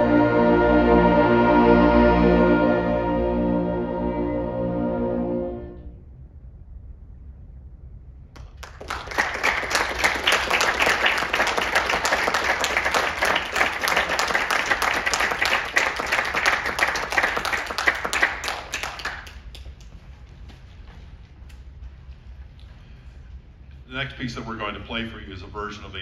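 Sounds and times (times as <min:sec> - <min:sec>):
audience applauding: 0:08.4 - 0:19.9.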